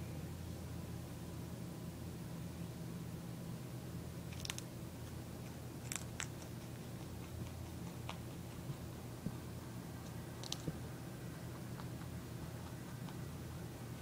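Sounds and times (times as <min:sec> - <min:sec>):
steady low hum: 0:00.0 - 0:14.0
rabbit crunching food: 0:04.0 - 0:14.0.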